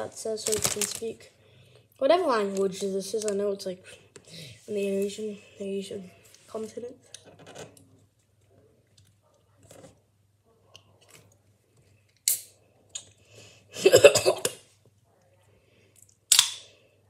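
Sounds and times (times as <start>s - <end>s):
loud cough: 13.8s - 14.6s.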